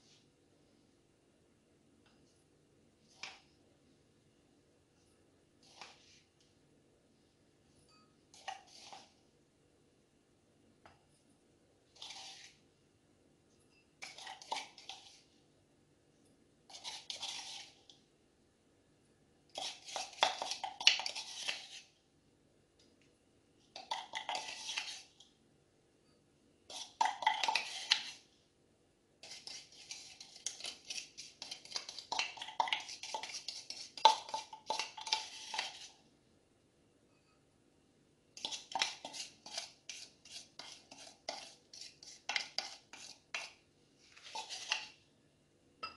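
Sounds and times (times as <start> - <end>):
spoon scraping a bowl: 7.8 - 9.2, 11.9 - 12.6, 13.7 - 15.4, 16.7 - 18.0, 19.5 - 22.0, 23.8 - 25.2, 26.7 - 28.3, 29.2 - 36.1, 38.4 - 45.0.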